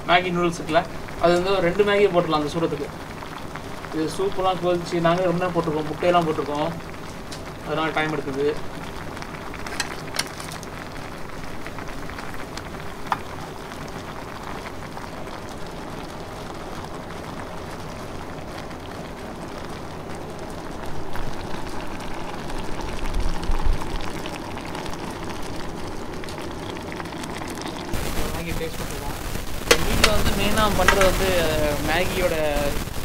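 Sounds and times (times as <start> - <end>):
soup boiling with hiss: 0.0 - 33.0
sharp clicks: 29.6 - 31.3.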